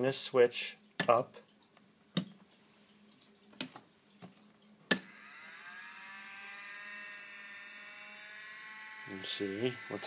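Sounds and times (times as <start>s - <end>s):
small electric motor whine: 5.0s - 10.0s.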